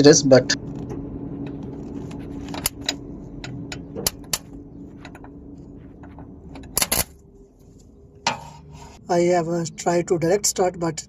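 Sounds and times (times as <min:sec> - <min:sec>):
faint steady hum: 0:00.0 - 0:11.0
electrical sparks snapping: 0:06.7 - 0:07.2.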